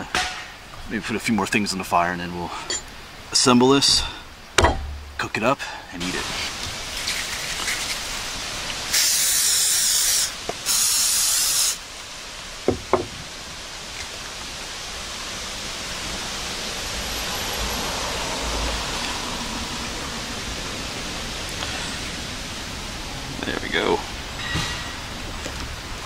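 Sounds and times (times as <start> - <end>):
quick knocks: 4.6 - 5.2
aerosol spray hissing: 8.9 - 11.8.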